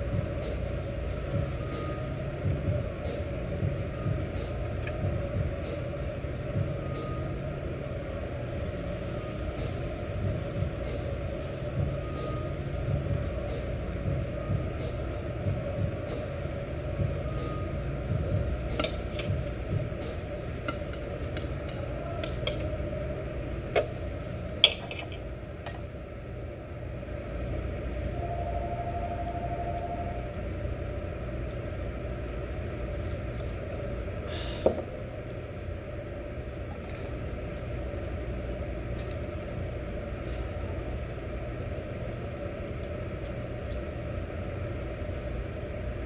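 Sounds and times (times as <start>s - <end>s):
low hum and hiss: 0.0s - 46.0s
meat sizzling on a grill: 7.6s - 13.8s, 14.6s - 22.1s, 35.4s - 46.0s
short faint tone: 28.2s - 30.3s.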